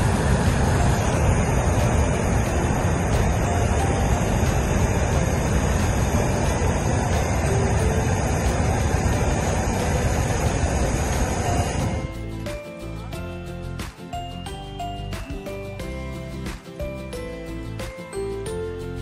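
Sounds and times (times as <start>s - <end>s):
propane burner rushing: 0.0s - 13.0s.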